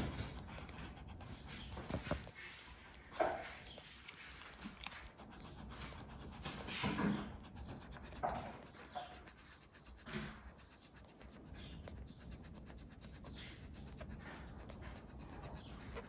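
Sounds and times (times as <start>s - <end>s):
dog panting: 0.0s - 16.0s.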